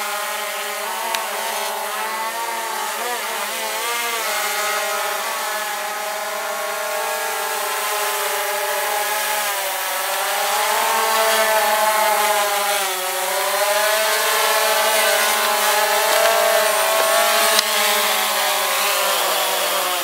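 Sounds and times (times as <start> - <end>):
drone propellers whining: 4.4 - 20.0.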